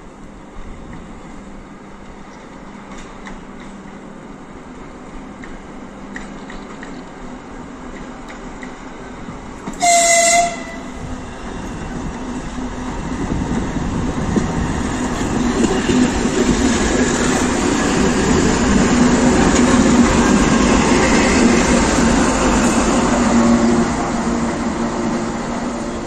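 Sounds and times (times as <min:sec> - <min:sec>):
diesel locomotive engine rumbling: 0:00.0 - 0:26.0
locomotive horn blast: 0:09.8 - 0:11.0.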